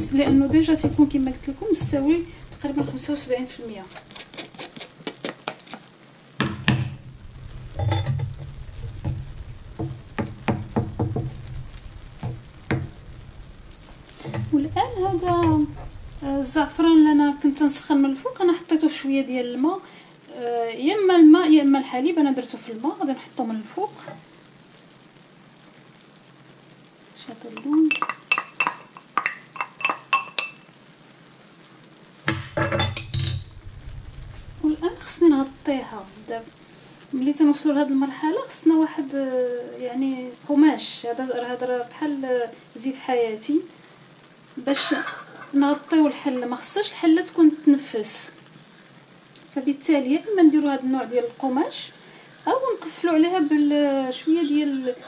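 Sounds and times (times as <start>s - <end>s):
wooden spoon clinking in glass: 27.9s - 30.6s.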